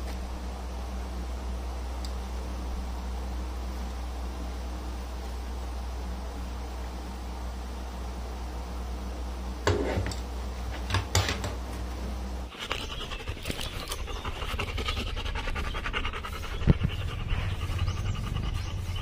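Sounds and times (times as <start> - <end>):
low steady hum: 0.0 - 19.0
dog panting: 12.5 - 19.0
dog harness clicks and rustles: 13.3 - 14.1.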